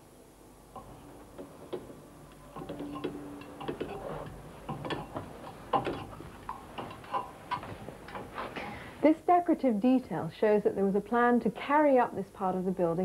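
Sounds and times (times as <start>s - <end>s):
shoes knocking on metal ladder: 0.8s - 8.9s.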